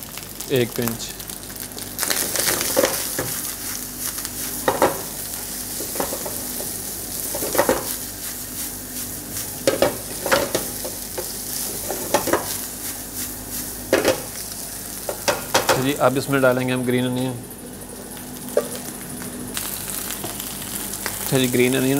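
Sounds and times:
rice sizzling in a frying pan: 0.0s - 21.9s
pan and spatula clattering: 4.6s - 5.1s, 5.7s - 8.0s, 9.6s - 12.6s, 13.9s - 14.3s, 15.0s - 15.9s.

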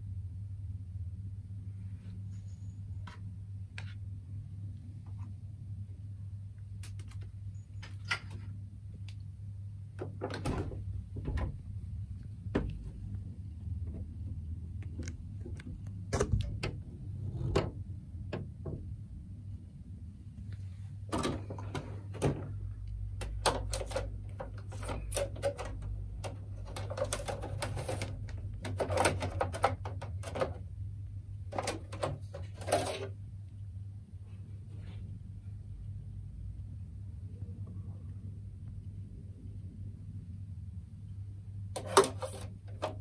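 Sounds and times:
steady low hum: 0.0s - 43.0s
plastic clicks and rattles: 21.2s - 30.6s.

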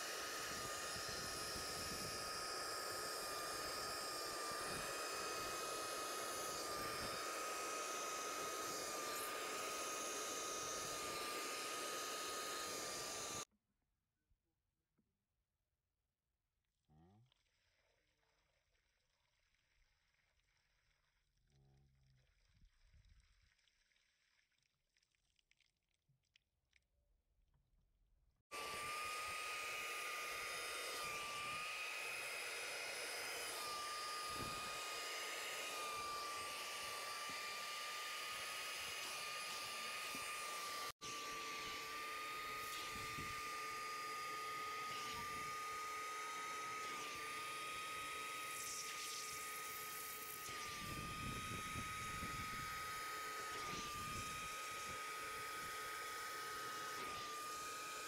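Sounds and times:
vacuum motor whining: 0.0s - 13.5s, 28.5s - 58.0s.

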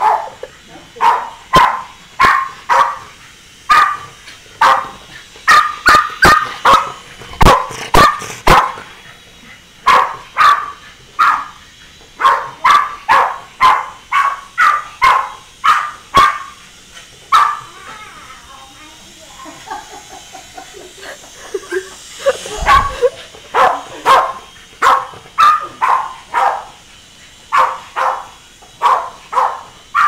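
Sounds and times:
small dog barking: 0.0s - 0.4s, 1.0s - 3.0s, 3.7s - 8.8s, 9.8s - 11.6s, 12.2s - 16.5s, 17.3s - 17.7s, 22.6s - 26.7s, 27.5s - 30.0s.

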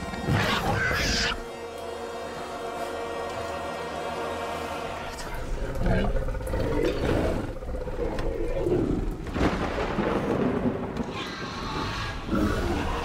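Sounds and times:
creature growling: 5.5s - 9.2s
heavy rain: 7.8s - 11.1s
thunder rumbling: 8.2s - 11.2s
sharp thunder crack: 9.2s - 11.1s.

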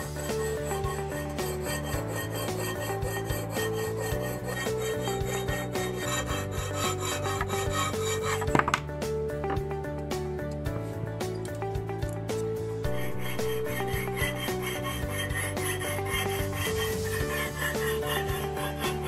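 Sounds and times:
ring rasping on abrasive paper: 0.0s - 8.5s, 12.9s - 19.0s
background music: 0.0s - 19.0s.

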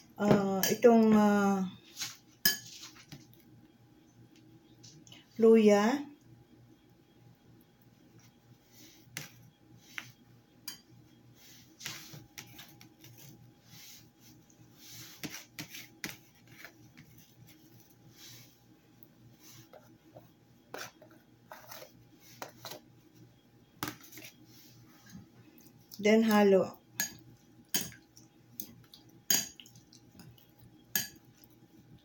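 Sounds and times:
soft rubbing: 11.3s - 23.2s, 24.0s - 25.7s.

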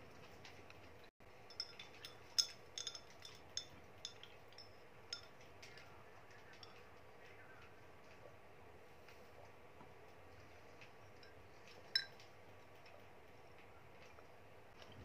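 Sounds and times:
glass clinks: 1.5s - 5.4s, 11.2s - 12.2s.

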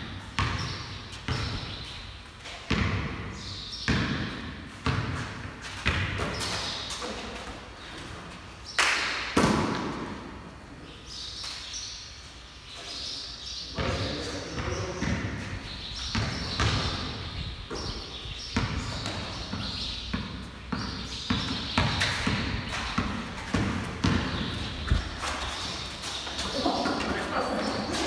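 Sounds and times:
basketball bouncing on concrete: 0.0s - 1.7s, 2.4s - 6.7s, 13.8s - 27.1s.

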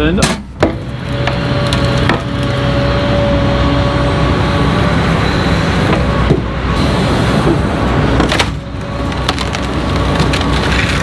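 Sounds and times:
excavator running: 0.0s - 11.0s
sharp wood cracks: 0.6s - 2.6s, 8.2s - 11.0s.

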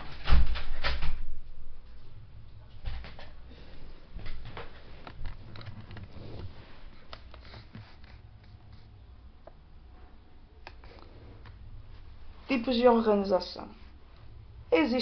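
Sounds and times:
rustling: 0.0s - 9.0s.

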